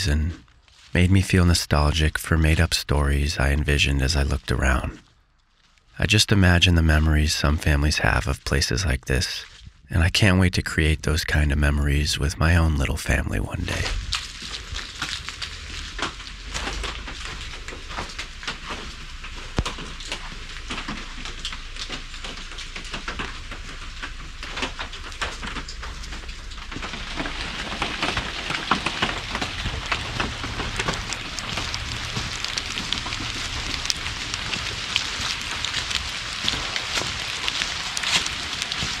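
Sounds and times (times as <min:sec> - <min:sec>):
rain drops pattering: 0:00.0 - 0:39.0.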